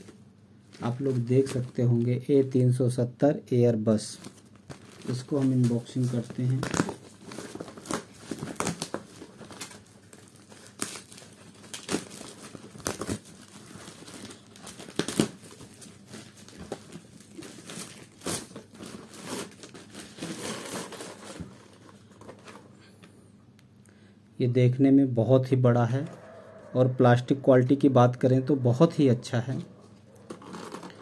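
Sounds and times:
plastic bag crinkling: 4.2s - 22.7s, 29.9s - 31.0s.

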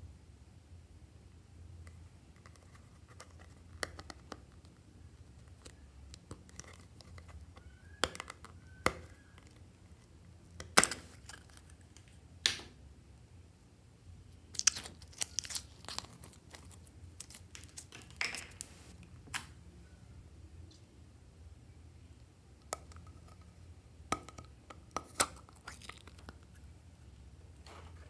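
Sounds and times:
slime crackling: 14.5s - 18.9s.

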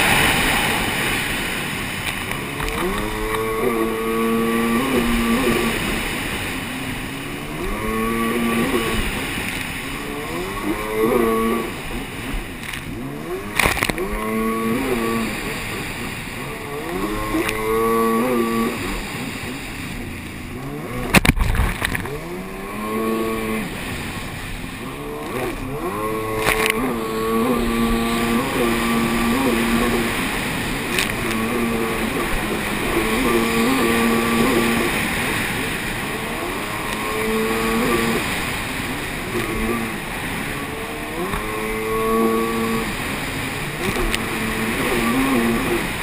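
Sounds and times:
jet ski engine revving: 0.0s - 46.0s
rush of spray and wind: 0.0s - 46.0s.

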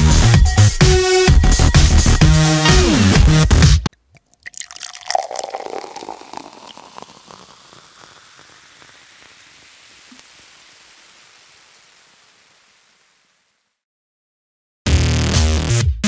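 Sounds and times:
juice pouring into glass bottle: 3.9s - 11.7s.

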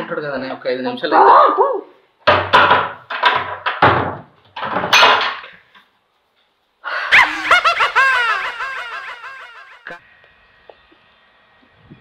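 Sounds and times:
person laughing: 6.9s - 10.0s.

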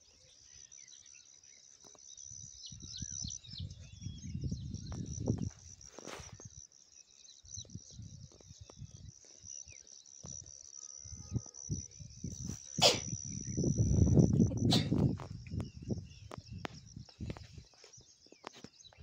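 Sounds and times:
high-pitched insect drone: 0.1s - 18.0s
wind gusts on microphone: 2.7s - 6.6s, 11.1s - 17.7s.

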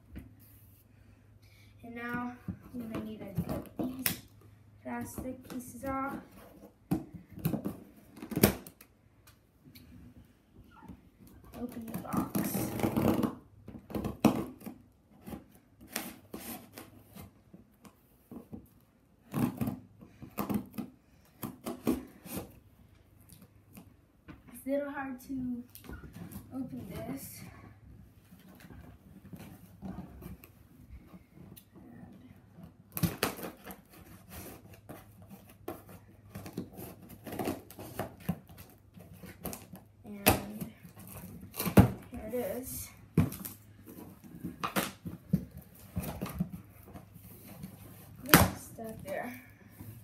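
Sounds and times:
scissors scraping cardboard: 14.3s - 17.4s, 32.9s - 42.4s.

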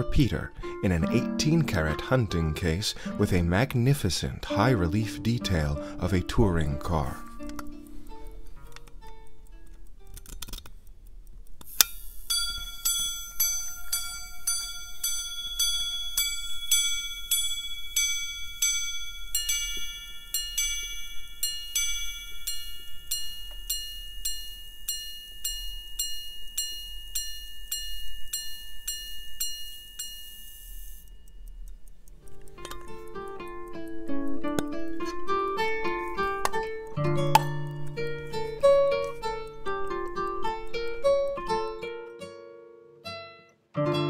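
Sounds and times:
repeater mechanism click: 3.4s - 41.8s
watch gong chiming: 12.2s - 31.5s.

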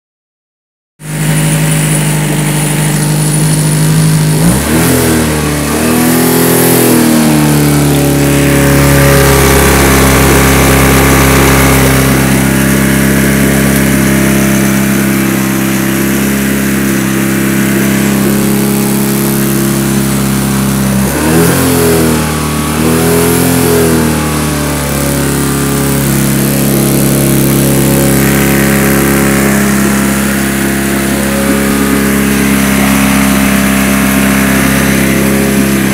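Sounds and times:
outboard motor running and revving: 1.0s - 35.9s.

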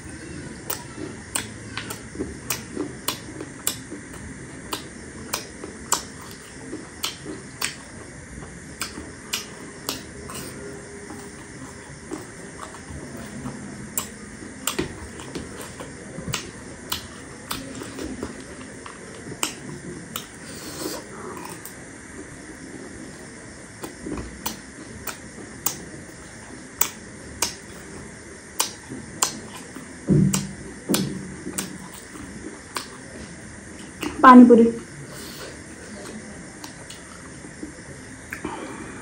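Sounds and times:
crunchy snack chewing: 0.6s - 22.4s.

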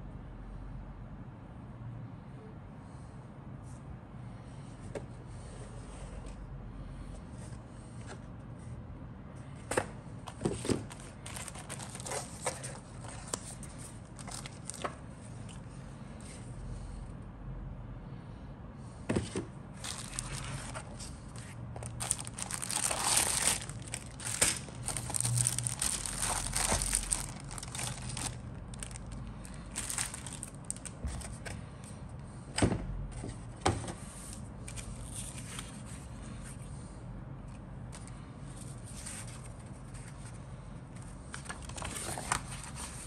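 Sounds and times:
plastic bag crinkling: 10.9s - 13.4s, 19.8s - 20.9s, 21.8s - 31.0s.

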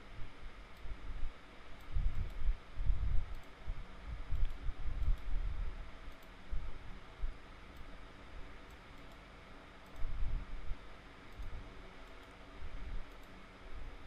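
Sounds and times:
computer mouse clicking: 1.8s - 2.4s, 3.3s - 3.6s, 4.3s - 5.4s, 6.1s - 6.4s, 7.7s - 8.0s, 8.6s - 10.1s, 11.3s - 12.4s, 13.0s - 13.4s.

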